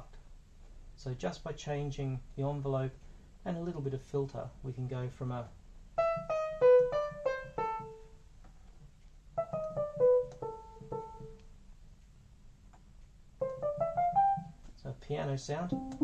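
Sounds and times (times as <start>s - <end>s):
synth piano-like notes: 6.0s - 8.1s, 9.4s - 11.4s, 13.4s - 14.6s, 15.6s - 16.0s.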